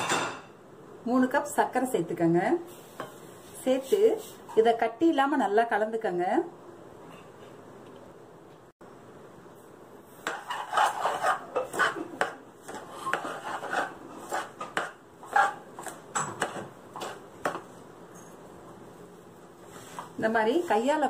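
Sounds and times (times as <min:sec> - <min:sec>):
hand scraping mix in a pan: 0:02.7 - 0:04.8, 0:10.0 - 0:18.0, 0:18.9 - 0:21.0.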